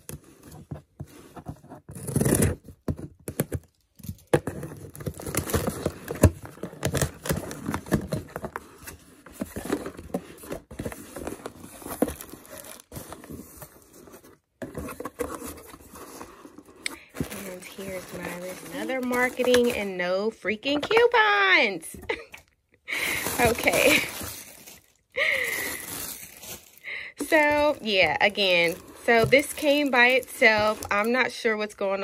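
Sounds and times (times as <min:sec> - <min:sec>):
cardboard scraping and rustling: 0:00.0 - 0:21.5, 0:23.0 - 0:32.0
scissors cutting packing tape: 0:01.9 - 0:02.6.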